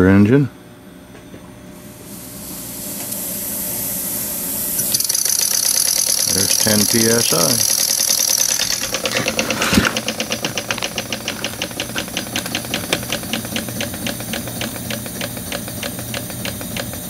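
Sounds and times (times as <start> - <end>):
model steam engine ticking: 4.9 - 17.0.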